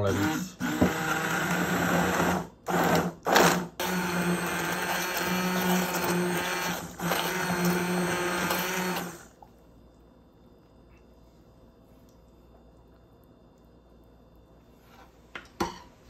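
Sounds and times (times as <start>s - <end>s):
immersion blender running: 0.0s - 9.3s.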